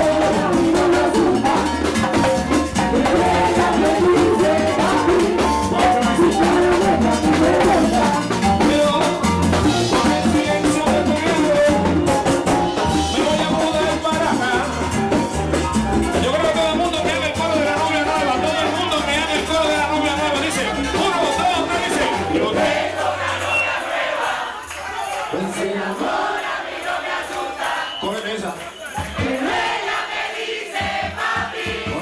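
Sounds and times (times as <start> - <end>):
person singing into microphone: 0.0 - 12.1
frame drums beating fast rhythm: 0.0 - 32.0.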